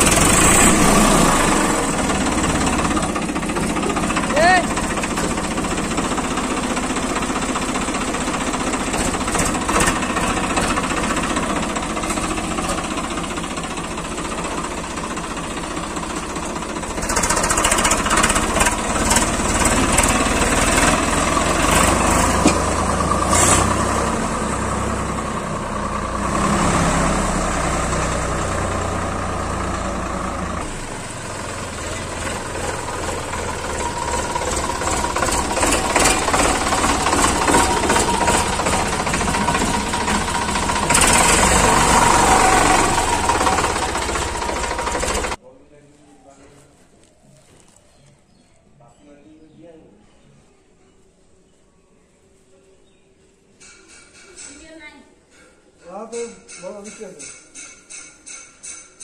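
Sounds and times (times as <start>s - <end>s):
diesel tractor engine running: 0.0s - 45.4s.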